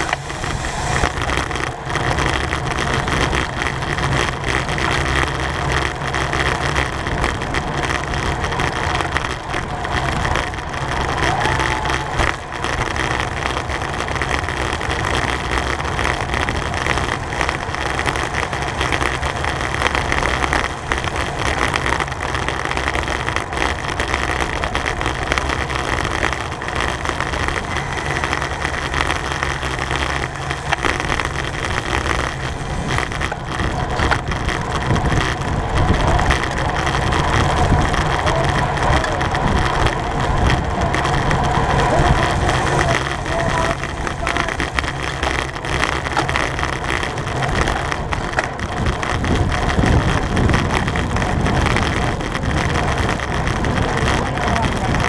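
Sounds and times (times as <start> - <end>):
bicycle tyre and road noise: 0.0 - 55.0
wind on microphone: 0.0 - 55.0.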